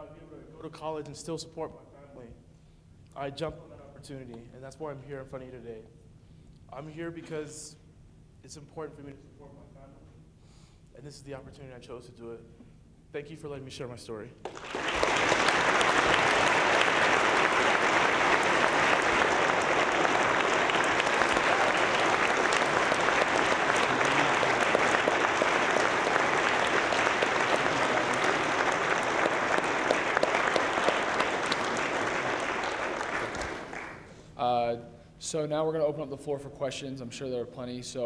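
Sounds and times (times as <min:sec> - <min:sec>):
audience applauding: 0:14.5 - 0:34.2.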